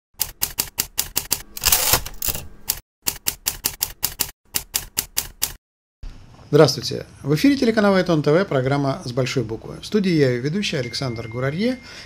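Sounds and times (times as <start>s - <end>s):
typewriter keys clacking: 0.2s - 5.6s.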